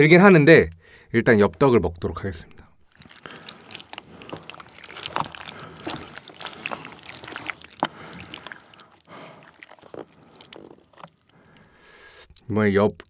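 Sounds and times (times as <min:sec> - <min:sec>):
chopsticks stirring thick sauce: 0:02.9 - 0:12.5.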